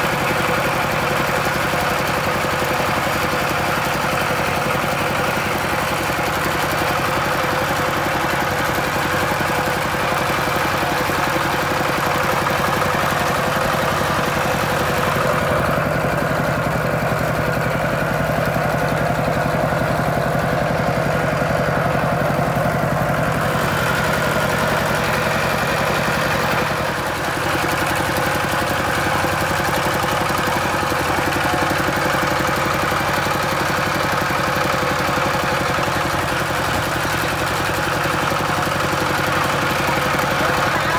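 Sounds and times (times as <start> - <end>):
diesel tractor engine running: 0.0 - 40.9.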